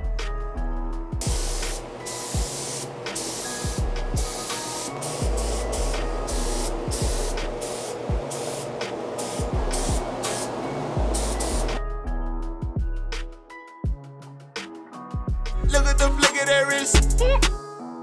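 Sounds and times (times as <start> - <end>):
spray gun hissing: 1.2 - 11.8.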